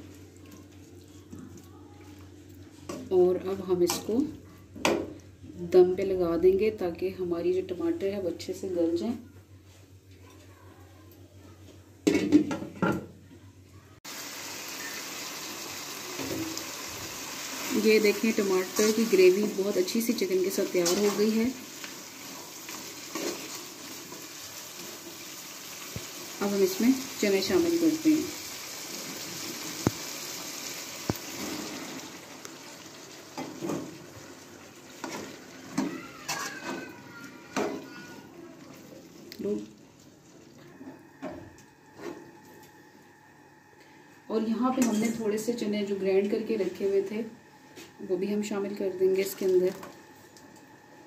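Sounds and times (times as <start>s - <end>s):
food sizzling in a pot: 14.0s - 40.5s
gravy simmering hiss: 14.0s - 44.6s.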